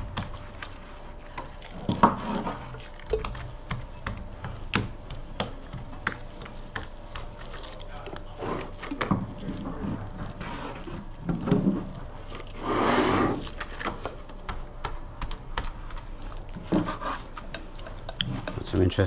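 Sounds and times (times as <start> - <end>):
brush working resin: 0.0 - 19.0
rasping scrape: 1.9 - 2.8, 9.4 - 13.6, 16.6 - 18.7.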